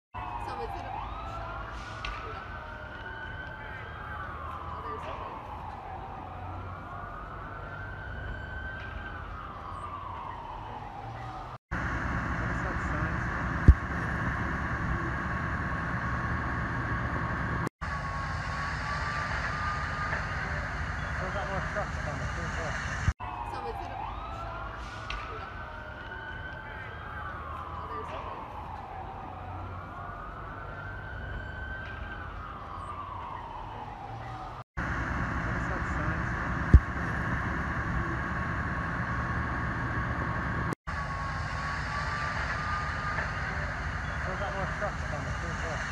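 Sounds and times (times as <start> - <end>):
diesel engines rumbling: 0.2 - 23.4, 24.0 - 45.9
thin steady whine: 11.7 - 23.1, 34.8 - 45.9.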